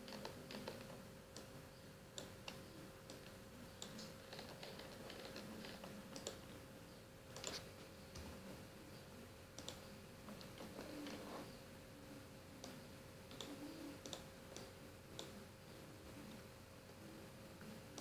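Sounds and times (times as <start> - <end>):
mouse and keyboard clicks: 0.0 - 1.5, 2.2 - 6.4, 7.4 - 8.3, 12.6 - 15.4
faint steady hum: 0.0 - 18.0.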